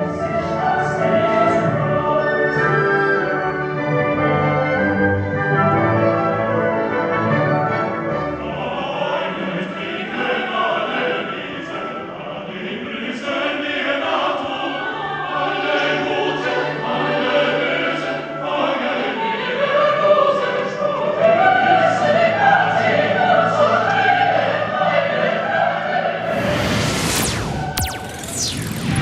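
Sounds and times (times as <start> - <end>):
choir and orchestra performing: 0.0 - 27.9
noisy swish: 26.2 - 29.0.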